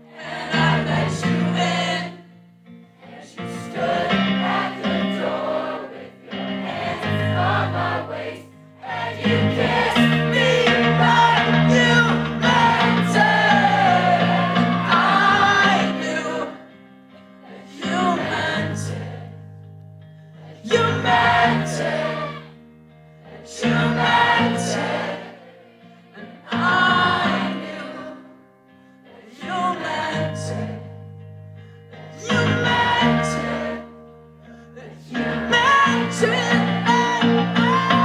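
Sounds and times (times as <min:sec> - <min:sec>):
crowd singing along: 0:00.0 - 0:19.6, 0:20.2 - 0:31.3, 0:31.9 - 0:38.0
person singing: 0:08.9 - 0:16.6, 0:32.2 - 0:33.8, 0:34.8 - 0:38.0.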